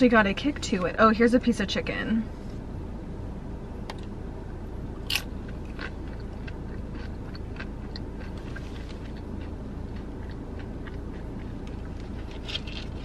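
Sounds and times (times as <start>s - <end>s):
low background rumble: 0.0s - 13.0s
crunchy chip bite: 5.0s - 8.4s
chewing with crackles: 5.0s - 13.0s.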